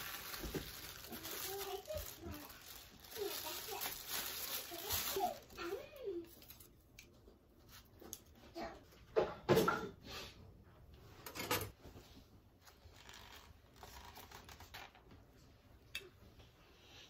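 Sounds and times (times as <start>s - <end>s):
objects rustling and tapping: 0.0s - 10.0s.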